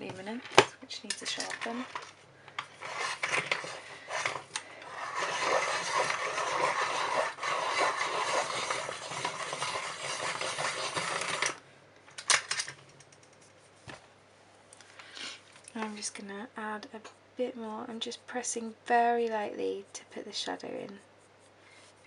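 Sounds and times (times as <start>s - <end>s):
pencil sharpener scraping: 2.8s - 11.6s.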